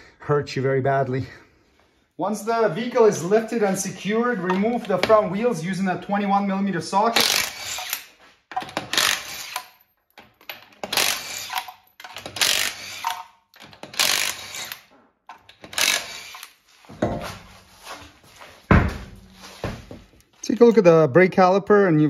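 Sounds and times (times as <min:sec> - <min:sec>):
impact wrench hammering: 0:07.2 - 0:09.7, 0:10.5 - 0:17.2.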